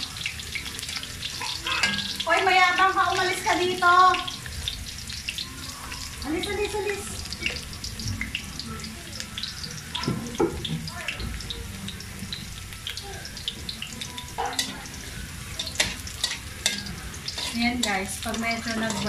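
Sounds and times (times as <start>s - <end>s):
vegetables sizzling in hot oil: 0.0s - 19.0s
metal tongs clicking: 15.6s - 19.0s.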